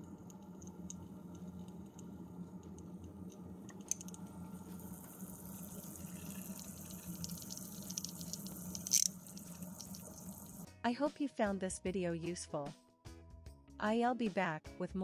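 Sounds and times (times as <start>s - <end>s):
steady low pump hum: 0.0s - 10.7s
coolant trickling and gurgling: 3.6s - 10.6s.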